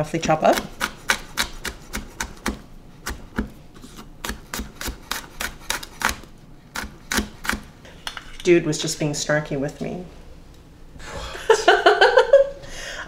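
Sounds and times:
knife chopping on wooden board: 4.2 - 7.7.

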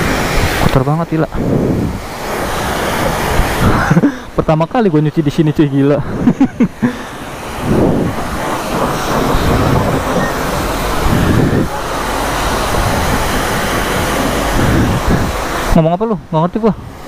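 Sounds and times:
pressure washer spraying water: 0.0 - 17.0.

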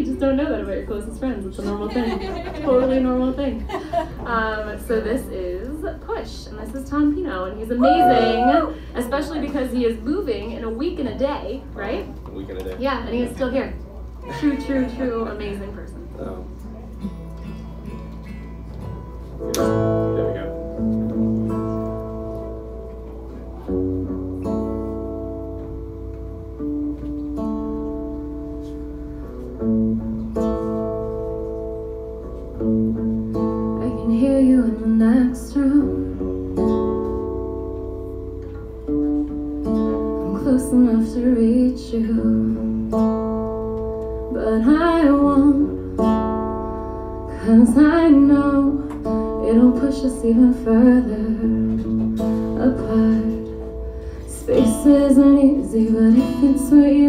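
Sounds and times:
woman singing: 7.6 - 8.8, 33.8 - 36.2, 40.2 - 42.7, 44.3 - 45.8, 47.3 - 53.6, 54.3 - 57.0
strummed acoustic guitar: 16.2 - 57.0.

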